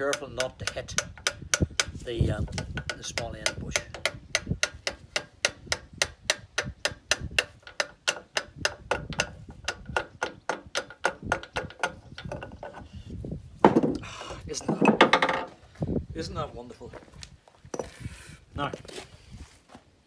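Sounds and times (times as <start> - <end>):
small hammer tapping metal: 0.0 - 12.5.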